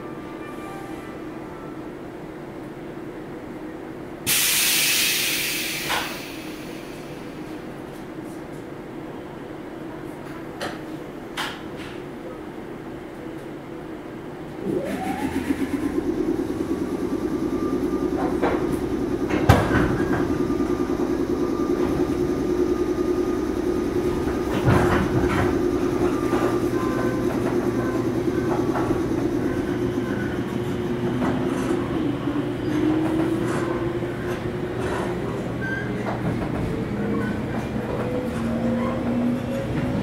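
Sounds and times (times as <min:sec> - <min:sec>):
train motor whine: 0:14.6 - 0:40.0.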